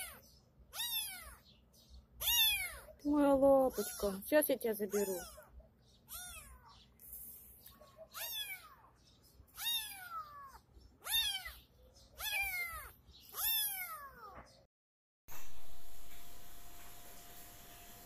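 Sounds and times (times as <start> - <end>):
kitten meowing: 0.0 - 1.4, 2.2 - 3.0, 3.7 - 4.2, 4.9 - 5.5, 6.1 - 6.7, 8.1 - 8.9, 9.5 - 14.4.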